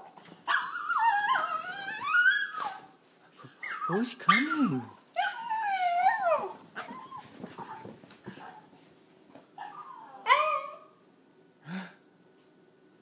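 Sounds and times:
dog whining: 0:00.0 - 0:08.9, 0:09.6 - 0:11.0
dog whimpering faintly: 0:00.6 - 0:08.8, 0:09.6 - 0:10.9.

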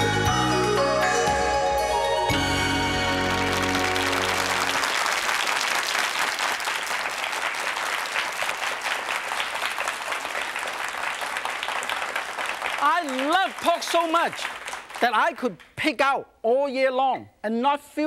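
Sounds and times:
theme music: 0:00.0 - 0:05.5
studio audience applauding: 0:02.6 - 0:15.6.

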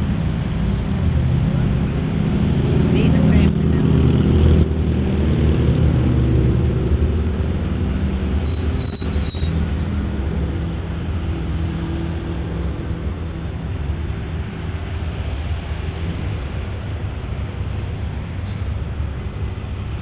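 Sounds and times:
vehicles passing slowly: 0:00.0 - 0:20.0
tyre noise on asphalt: 0:07.1 - 0:20.0.

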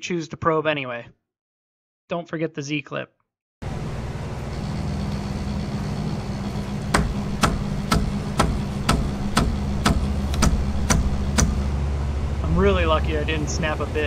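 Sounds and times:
stalled motor knocking: 0:03.6 - 0:11.8
stepper motor humming: 0:03.6 - 0:14.0.

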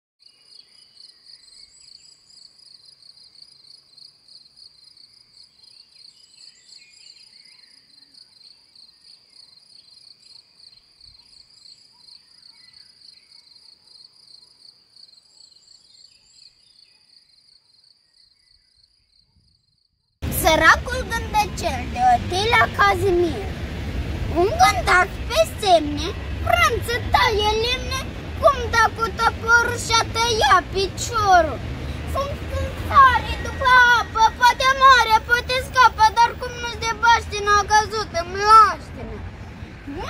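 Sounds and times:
crickets chirping: 0:00.6 - 0:20.0.

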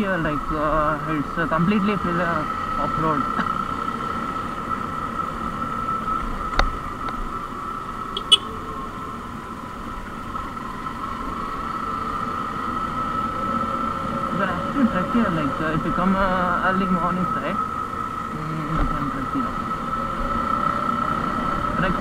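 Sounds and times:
motorcycle engine running: 0:08.1 - 0:09.3
steady tone: 0:08.2 - 0:08.6.

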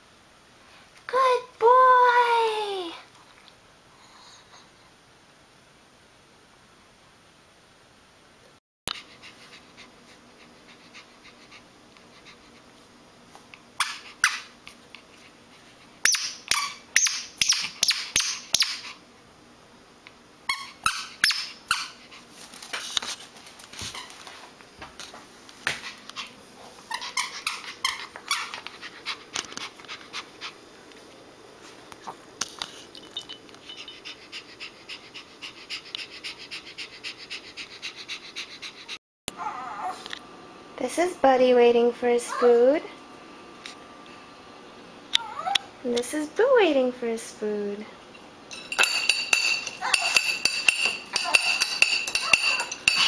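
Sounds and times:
dog squeaking: 0:16.0 - 0:18.9, 0:20.5 - 0:22.0, 0:26.9 - 0:28.6.

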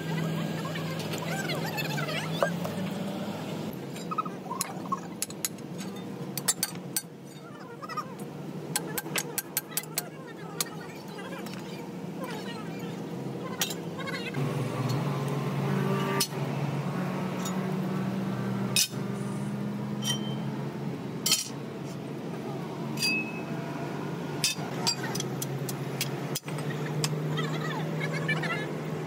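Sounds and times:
tools and steel parts clinking: 0:03.9 - 0:07.5, 0:17.4 - 0:17.6, 0:18.8 - 0:19.0, 0:20.0 - 0:20.4, 0:21.2 - 0:21.6, 0:23.0 - 0:23.4, 0:24.4 - 0:27.1
metal strikes ringing: 0:20.0 - 0:20.5, 0:23.0 - 0:23.5.

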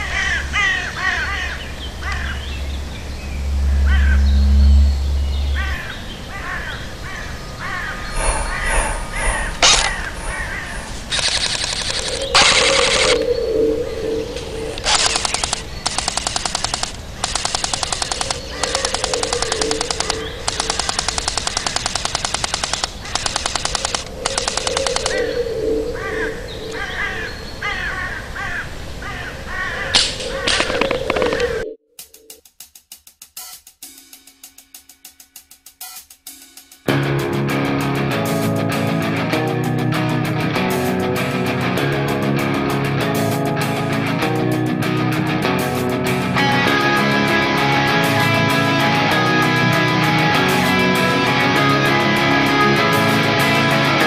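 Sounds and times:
crows cawing: 0:00.0 - 0:02.6, 0:03.7 - 0:04.3, 0:05.5 - 0:15.4, 0:17.8 - 0:21.9, 0:22.9 - 0:31.7
full-automatic gunfire bursts: 0:14.9 - 0:25.2.

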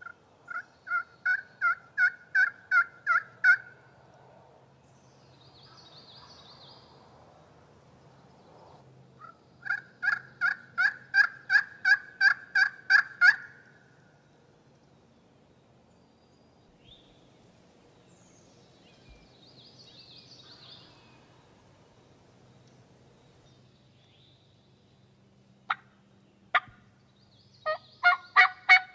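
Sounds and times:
turkey yelps: 0:00.0 - 0:03.7, 0:09.2 - 0:13.6, 0:27.6 - 0:28.9
songbird singing faintly: 0:00.0 - 0:28.9.

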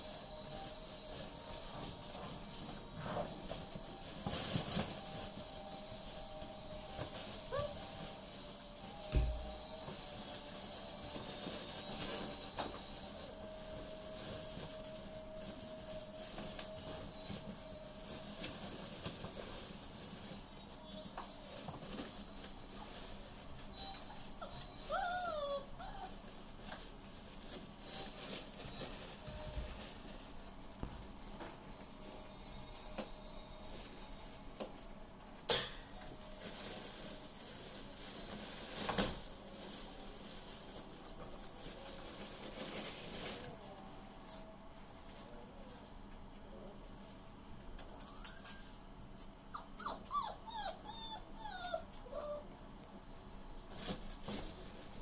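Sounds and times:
puppies pattering on hard floor: 0:00.0 - 0:35.4
faint steady hum: 0:00.0 - 0:55.0.

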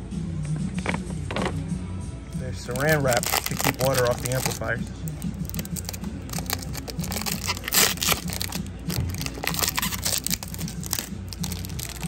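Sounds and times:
plastic wrap crinkling and tearing: 0:02.6 - 0:12.0.

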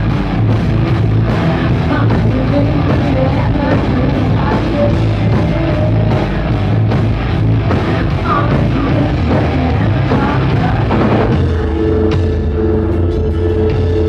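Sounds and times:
rock band playing live: 0:00.0 - 0:14.0
woman singing: 0:01.8 - 0:06.4, 0:08.1 - 0:11.2.

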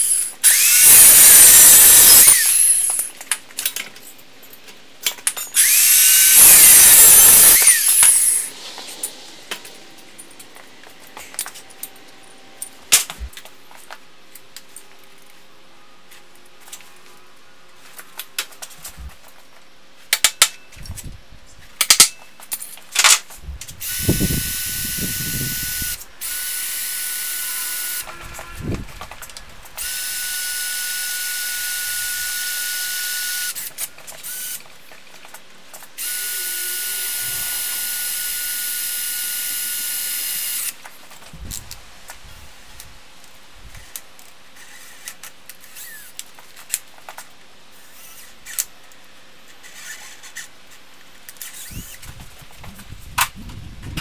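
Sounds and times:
cordless drill boring steel: 0:00.0 - 0:03.1, 0:05.6 - 0:08.6, 0:23.8 - 0:28.1, 0:29.8 - 0:34.6, 0:36.0 - 0:40.8, 0:51.4 - 0:52.0.

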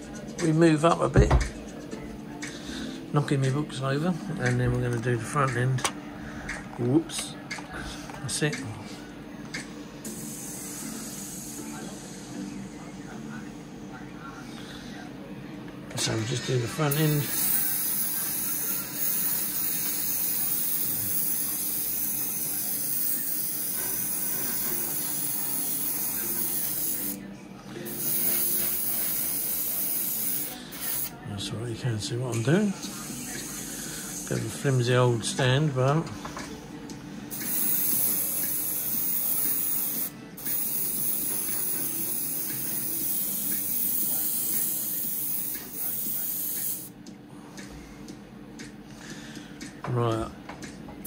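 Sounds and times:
spray paint hissing: 0:17.0 - 0:27.2, 0:27.9 - 0:31.1, 0:37.3 - 0:46.9.

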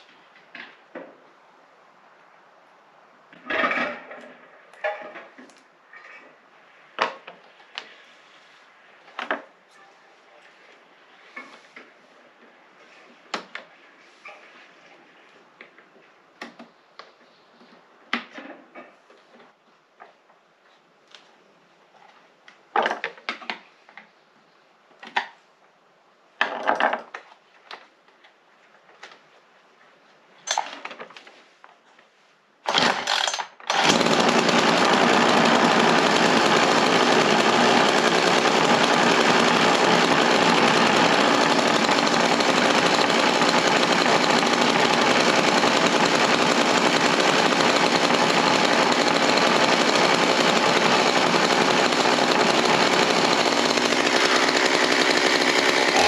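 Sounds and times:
chainsaw engine running: 0:32.7 - 0:56.0.

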